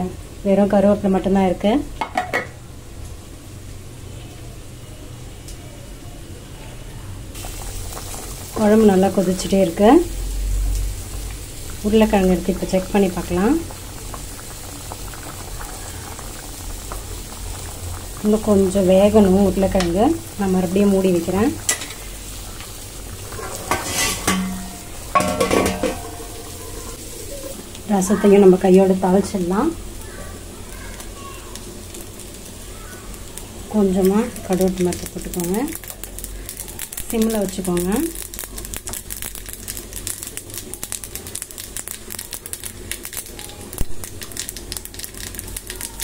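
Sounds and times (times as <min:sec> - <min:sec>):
mustard seeds popping in hot oil: 0:07.4 - 0:46.0
metal ladle scraping a pot: 0:23.1 - 0:26.5
ringing metal clatter: 0:23.3 - 0:26.4.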